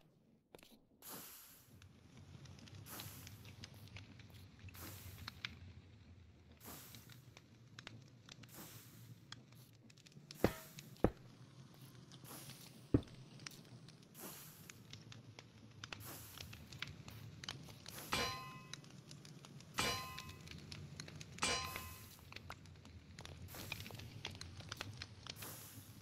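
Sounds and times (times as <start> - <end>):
ringing metal clang: 10.4 - 10.8, 18.1 - 18.7, 19.8 - 20.4, 21.4 - 22.1
sharp thumps: 10.4 - 11.2.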